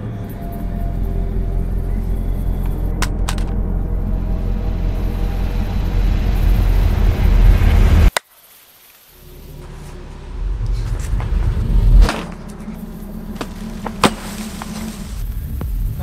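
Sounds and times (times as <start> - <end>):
deep rumbling: 0.0 - 8.1, 9.2 - 16.0
sharp crack: 8.1 - 9.1, 13.3 - 15.2.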